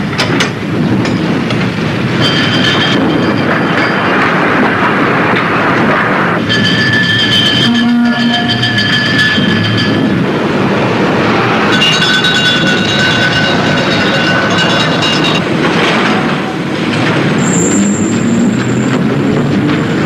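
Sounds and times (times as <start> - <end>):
shrill metallic squealing: 6.4 - 10.2, 17.4 - 18.6
metal clattering on metal: 6.4 - 10.3, 11.6 - 17.4.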